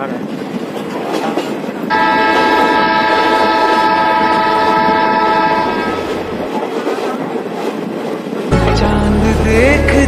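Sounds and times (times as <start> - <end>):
moving train running noise: 0.0 - 10.0
locomotive horn blast: 1.9 - 6.5.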